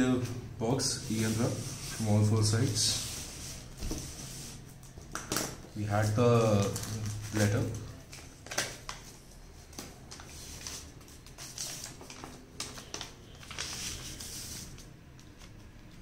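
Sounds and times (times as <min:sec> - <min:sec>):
paper rustling and crinkling: 0:05.9 - 0:16.0.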